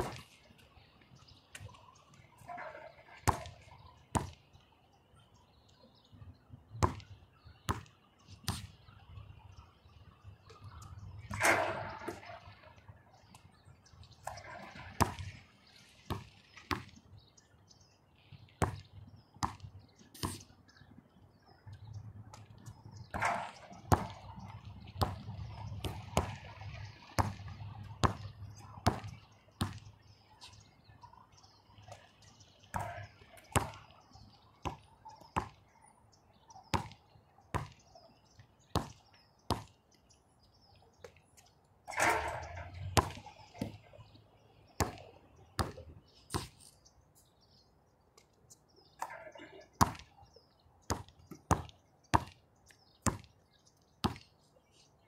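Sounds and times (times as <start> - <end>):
basketball bouncing on hard court: 23.1 - 24.2, 25.0 - 26.4, 27.2 - 29.8, 33.6 - 33.9, 44.8 - 45.0, 50.9 - 52.4, 53.0 - 53.3.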